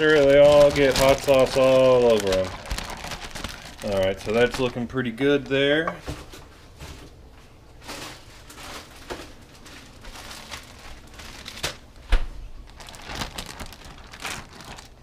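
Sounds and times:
plastic bags rustling: 0.0s - 15.0s.

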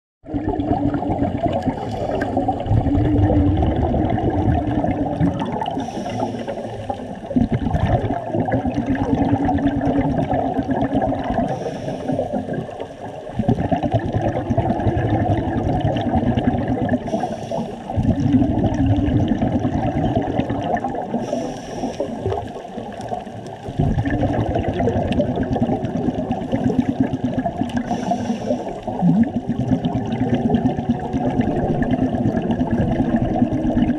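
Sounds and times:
hissing inhales: 1.8s - 2.5s, 5.7s - 7.0s, 11.5s - 12.6s, 17.0s - 18.0s, 21.2s - 22.5s, 27.8s - 28.9s
regulator bubbling exhaust: 17.9s - 21.3s.

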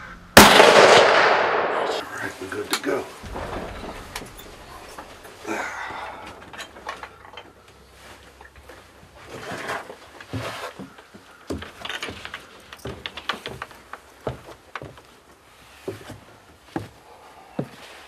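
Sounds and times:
footsteps on wooden steps: 2.8s - 18.0s
wooden door opening: 3.2s - 5.4s.

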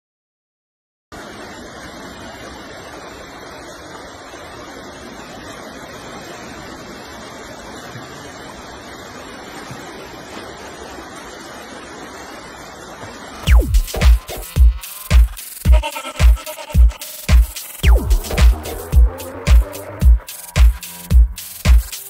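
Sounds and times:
river rapids rushing: 6.2s - 22.0s.

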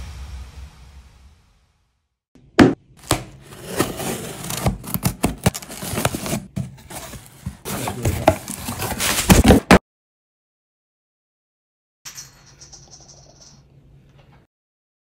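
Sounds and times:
plastic packing rustling: 3.0s - 9.6s.

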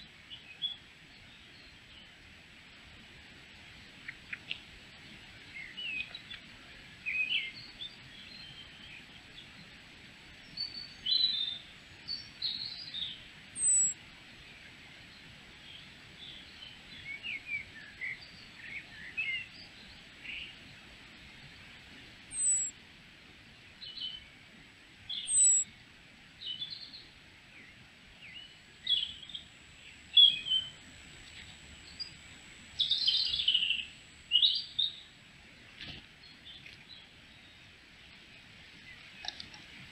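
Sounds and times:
songbirds chirping and singing: 22.3s - 22.7s, 25.1s - 25.7s, 26.4s - 35.1s.

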